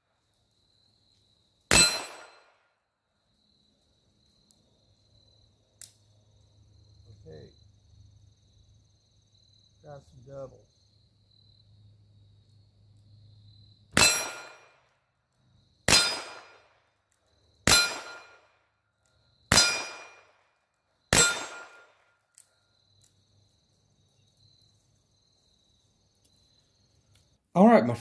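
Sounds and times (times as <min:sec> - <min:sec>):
steel plate target ringing: 0:01.7 - 0:02.4, 0:14.0 - 0:14.7, 0:17.7 - 0:18.4, 0:19.5 - 0:20.2, 0:21.1 - 0:21.8
revolver gunshots: 0:01.7 - 0:02.6, 0:14.0 - 0:14.8, 0:15.9 - 0:16.7, 0:17.6 - 0:18.4, 0:19.5 - 0:20.4, 0:21.1 - 0:22.0.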